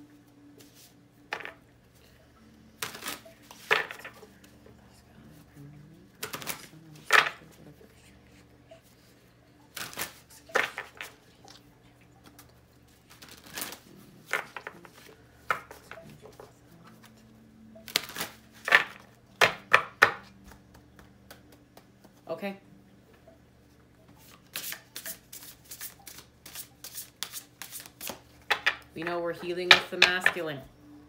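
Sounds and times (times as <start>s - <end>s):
cards being shuffled: 2.8s - 4.4s, 6.1s - 7.6s, 9.8s - 11.6s, 12.2s - 17.2s, 17.9s - 22.2s, 24.2s - 28.7s.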